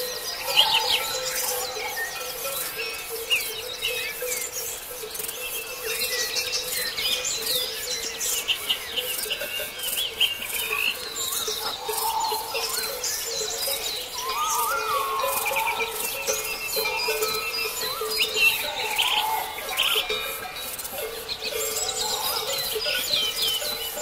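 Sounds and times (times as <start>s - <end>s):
songbirds chirping and trilling: 0.0s - 24.0s
low whistled bird call: 14.0s - 20.0s.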